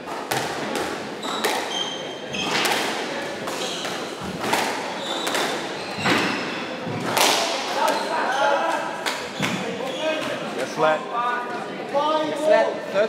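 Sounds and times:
squash ball hitting racquets and walls: 0.0 - 8.1, 9.0 - 10.4
shoes squeaking on wooden floor: 1.2 - 2.7, 3.5 - 7.1, 9.2 - 10.4.

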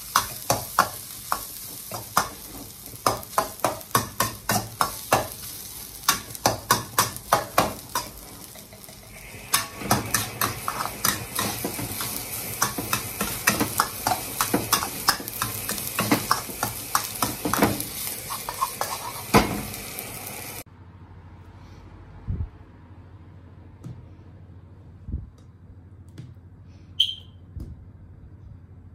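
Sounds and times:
spatula scraping and knocking on wok: 0.0 - 19.8
rice sizzling: 0.0 - 20.7.

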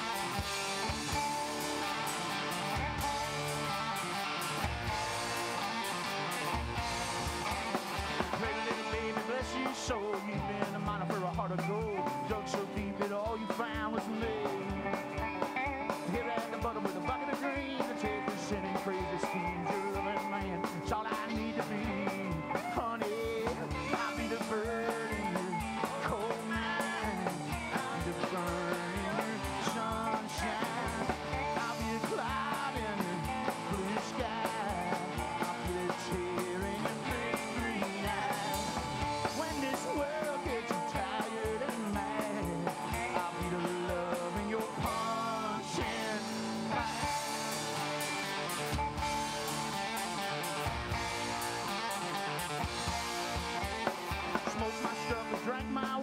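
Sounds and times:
rock and roll band playing: 0.0 - 56.0.

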